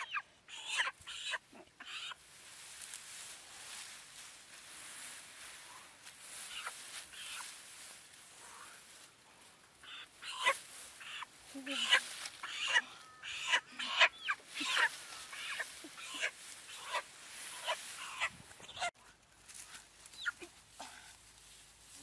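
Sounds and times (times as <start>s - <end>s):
chickens squawking: 0.0s - 2.2s, 6.3s - 7.6s, 9.8s - 19.0s, 20.2s - 20.6s.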